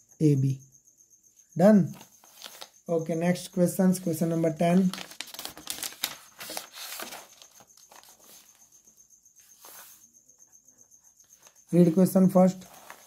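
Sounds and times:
paper rustling and crinkling: 0:01.9 - 0:02.8, 0:04.0 - 0:08.6, 0:12.5 - 0:13.0.

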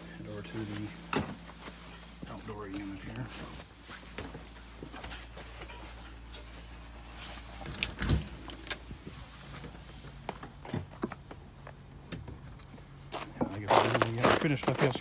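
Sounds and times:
door opening and thumping shut: 0:07.7 - 0:08.4
footsteps on steps and snow: 0:13.0 - 0:15.0.

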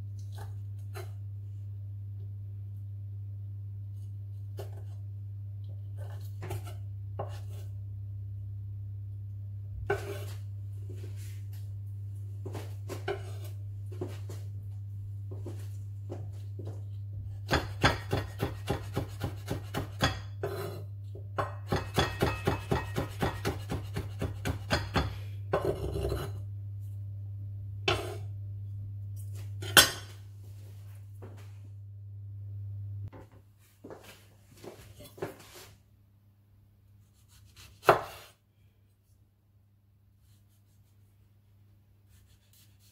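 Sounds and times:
steady low hum: 0:00.0 - 0:37.6
knife chopping on wooden board: 0:17.5 - 0:20.6, 0:21.7 - 0:25.2, 0:37.5 - 0:38.3.

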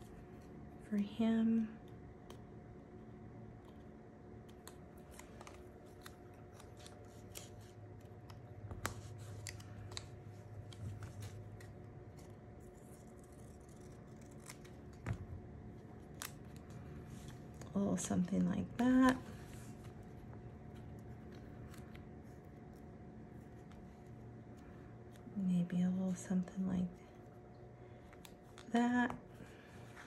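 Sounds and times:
faint hum: 0:00.0 - 0:30.0
scissors snipping paper: 0:03.5 - 0:23.6.

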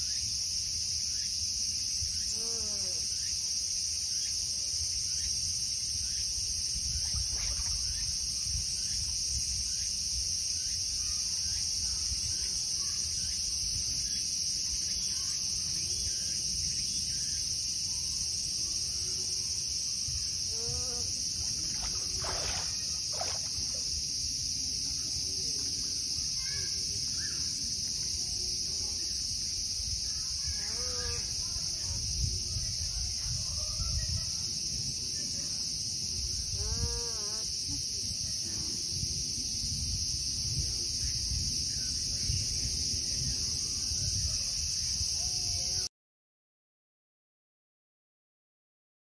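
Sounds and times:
high-pitched insect chorus drone: 0:00.0 - 0:45.9.

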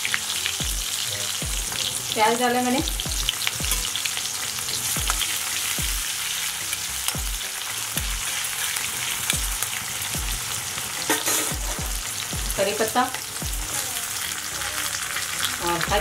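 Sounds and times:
onions sizzling in hot oil: 0:00.0 - 0:16.0
low thumping beat: 0:00.6 - 0:04.0, 0:04.9 - 0:08.4, 0:09.2 - 0:13.9, 0:15.6 - 0:16.0.

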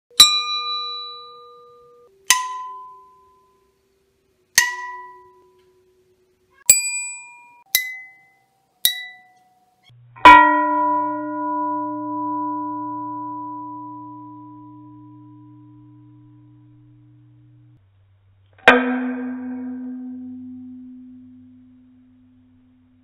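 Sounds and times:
hammer striking ringing metal barrel: 0:00.1 - 0:03.1, 0:04.6 - 0:05.4, 0:08.8 - 0:09.3, 0:10.2 - 0:15.2, 0:18.7 - 0:21.5
slowed low ringing strike: 0:09.9 - 0:17.8, 0:18.5 - 0:23.0.

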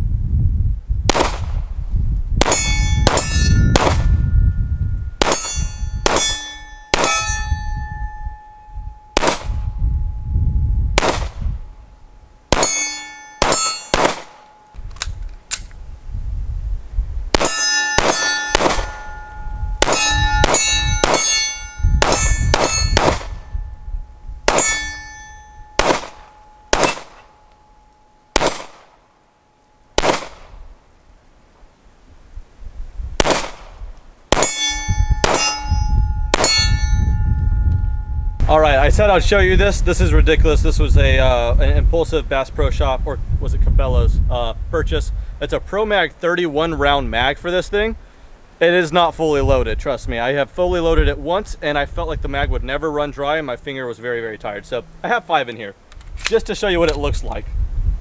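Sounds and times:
pistol shots: 0:01.1 - 0:01.5, 0:02.4 - 0:04.1, 0:05.2 - 0:07.4, 0:09.2 - 0:09.5, 0:11.0 - 0:11.4, 0:12.5 - 0:14.6, 0:17.4 - 0:19.2, 0:19.8 - 0:21.4, 0:22.0 - 0:23.4, 0:24.5 - 0:25.0, 0:25.8 - 0:27.3, 0:28.4 - 0:29.0, 0:30.0 - 0:30.6, 0:33.2 - 0:34.6, 0:35.2 - 0:35.7
steel targets ringing: 0:02.4 - 0:10.4, 0:11.0 - 0:14.8, 0:17.4 - 0:30.0, 0:33.2 - 0:38.4.

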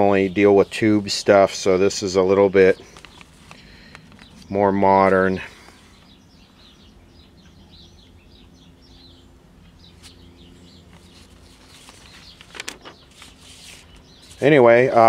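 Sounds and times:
low steady hum: 0:00.0 - 0:15.0
small birds chirping: 0:00.0 - 0:15.0.

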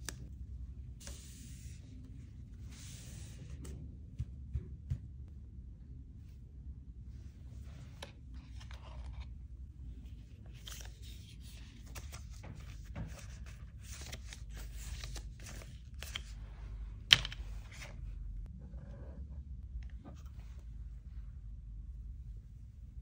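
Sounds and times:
paper cards rustling: 0:07.9 - 0:09.4, 0:10.0 - 0:16.4.

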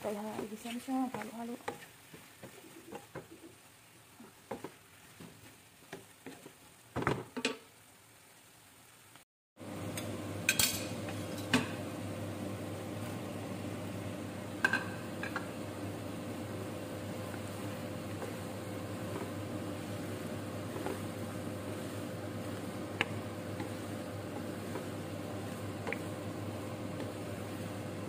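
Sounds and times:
wooden spatula scraping a wok: 0:00.1 - 0:06.7, 0:16.6 - 0:28.0
steady mechanical hum: 0:09.6 - 0:28.0.

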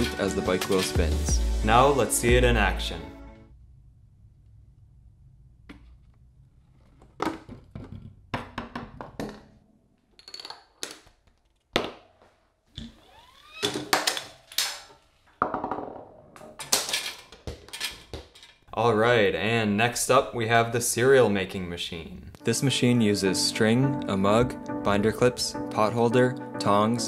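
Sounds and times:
objects knocking and clattering: 0:07.0 - 0:12.3, 0:13.6 - 0:18.7.

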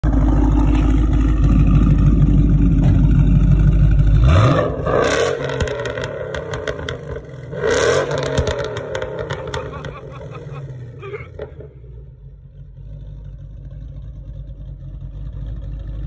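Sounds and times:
car engine rumbling and revving: 0:00.0 - 0:16.0.

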